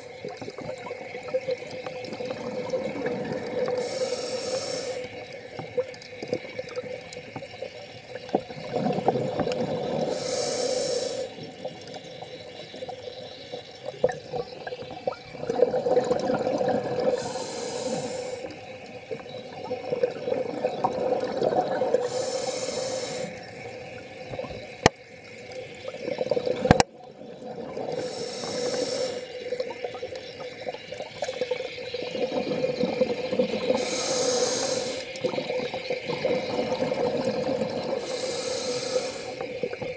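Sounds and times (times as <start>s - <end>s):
bubbling exhalation rumble: 0.0s - 4.0s, 8.4s - 10.4s, 14.0s - 18.6s, 19.2s - 22.2s, 25.8s - 39.9s
regulator inhalation hiss: 3.5s - 5.7s, 8.6s - 11.6s, 17.0s - 19.2s, 21.9s - 25.9s, 27.9s - 29.5s, 32.0s - 36.4s, 37.2s - 39.9s.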